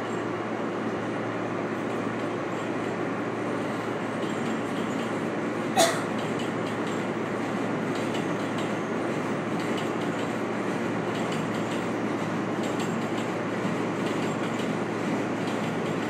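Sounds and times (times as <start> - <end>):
subway train rumbling on rails: 0.0 - 16.0
wheels clicking over rail joints: 12.6 - 13.4.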